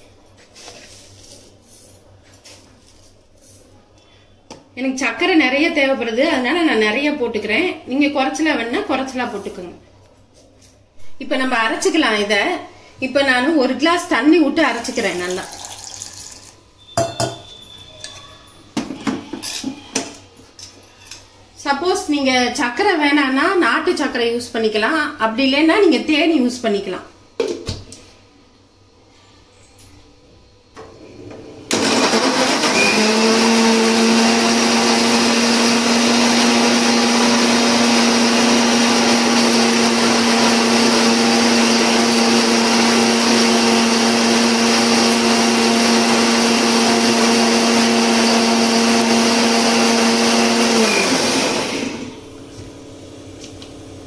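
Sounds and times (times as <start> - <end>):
mixer grinder motor whining: 31.7 - 52.4.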